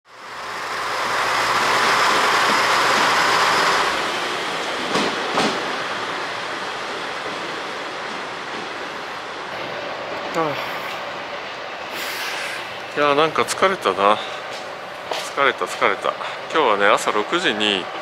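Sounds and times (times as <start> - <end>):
train rolling past: 0.1 - 18.0
wheels clacking over rail joint: 4.7 - 5.8.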